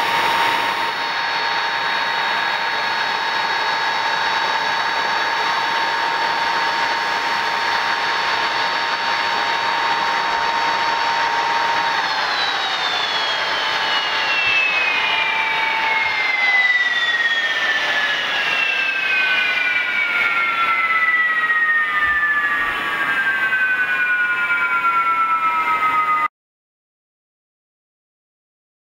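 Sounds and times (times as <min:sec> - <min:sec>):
jet engine spooling down: 0:00.0 - 0:26.3
jet engines whining at idle: 0:00.0 - 0:26.3.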